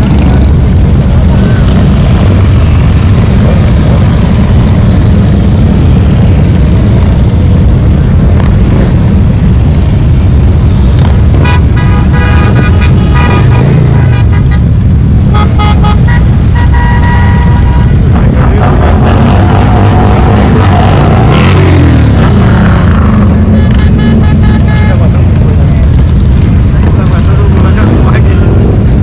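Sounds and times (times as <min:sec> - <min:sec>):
traffic rumble: 0:00.0 - 0:29.0
car horn toots: 0:11.4 - 0:18.0, 0:23.5 - 0:25.2.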